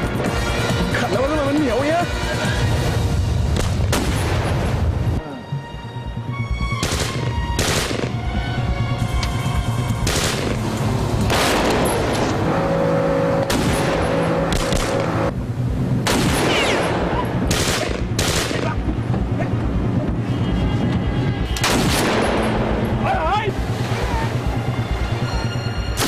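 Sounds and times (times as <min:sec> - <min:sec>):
low drone: 0:02.1 - 0:26.0
automatic rifle fire: 0:06.8 - 0:08.1, 0:17.5 - 0:18.7, 0:21.6 - 0:22.5.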